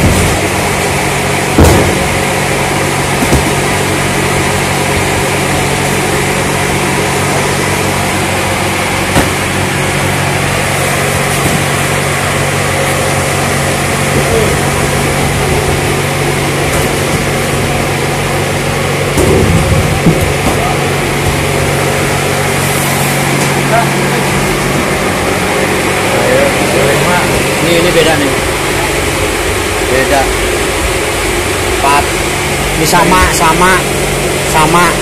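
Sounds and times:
cardboard cartons thumping: 0.0s - 5.1s, 9.0s - 9.7s, 10.9s - 12.1s, 12.8s - 22.5s
machinery humming: 0.0s - 35.0s.

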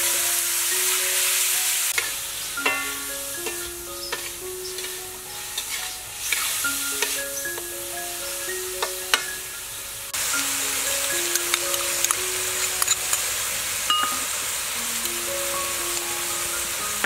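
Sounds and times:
meat sizzling in a wok: 0.0s - 17.0s
soft melody of sustained notes: 0.0s - 17.0s
metal spatula scraping a pan: 2.0s - 7.2s.

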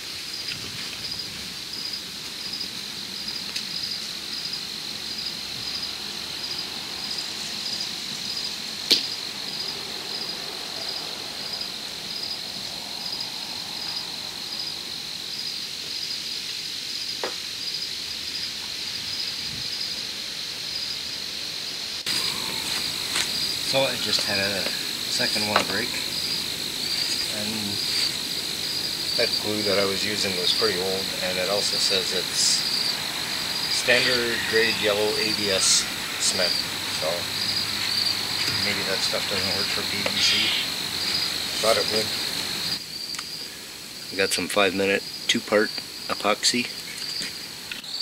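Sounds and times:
crickets chirping: 0.0s - 48.0s
sharp crack: 8.9s - 9.2s.

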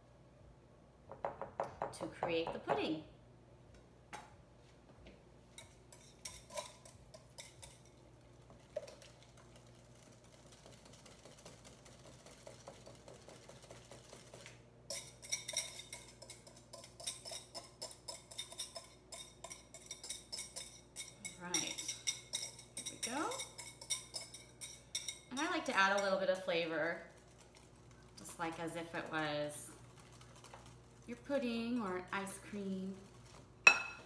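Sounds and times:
whisk clinking against glass bowl: 5.6s - 8.0s, 10.4s - 26.2s, 33.6s - 34.0s.

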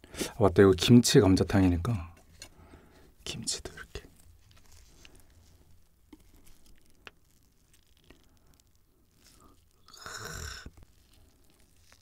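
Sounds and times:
wet squish of food: 10.6s - 12.0s.

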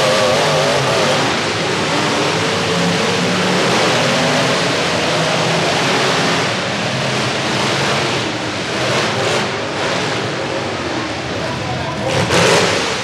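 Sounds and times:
truck engines revving in arena: 0.0s - 13.0s.

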